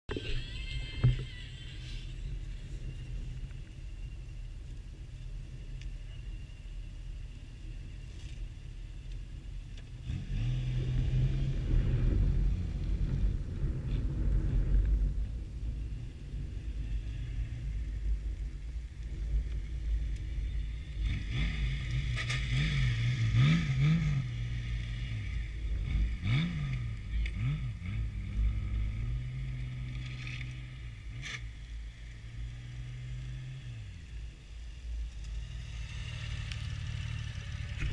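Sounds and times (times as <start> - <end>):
motorcycle engine with throttle blips: 18.4 - 37.9.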